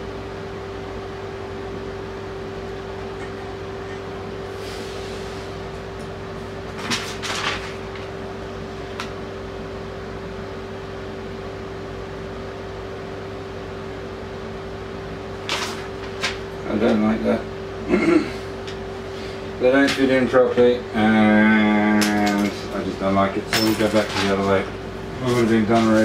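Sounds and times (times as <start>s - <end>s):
steady machine hum: 0.0s - 26.0s
rustles and clicks of handling: 22.0s - 26.0s.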